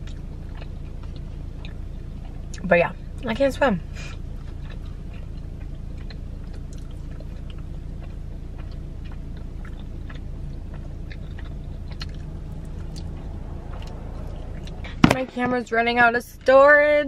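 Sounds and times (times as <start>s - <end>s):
person chewing food: 0.0s - 2.6s, 4.1s - 15.1s
car interior hum: 0.0s - 17.0s.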